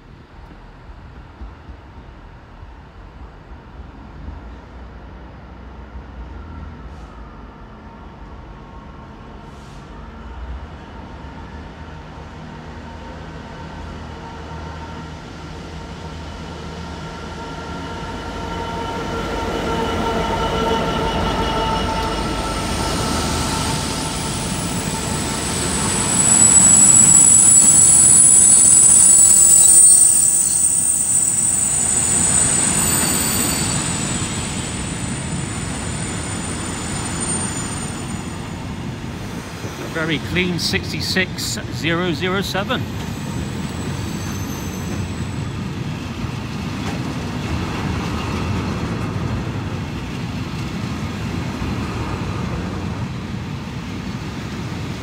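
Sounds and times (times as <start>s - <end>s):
freight train rolling past: 0.0s - 55.0s
high-pitched train wheel squealing: 14.6s - 51.2s.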